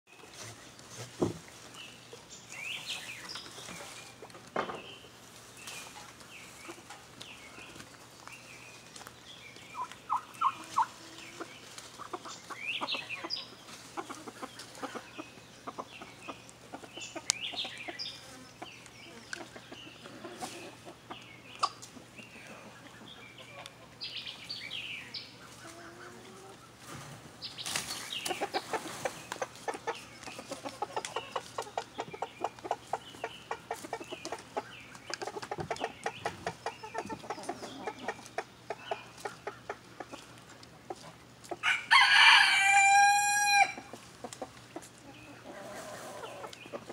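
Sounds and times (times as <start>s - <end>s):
chickens clucking: 0.1s - 46.9s
turkey calling: 9.7s - 13.4s.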